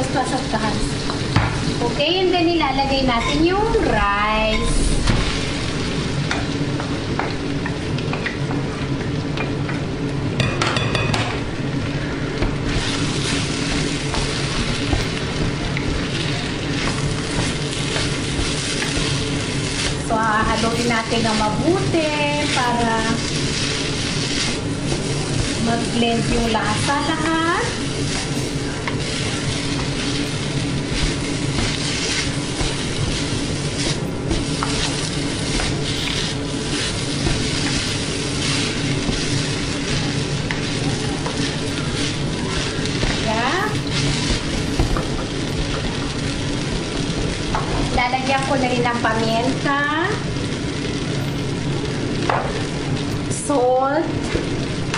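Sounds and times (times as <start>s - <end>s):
rice sizzling in a wok: 0.0s - 54.9s
spatula scraping a wok: 22.2s - 48.0s.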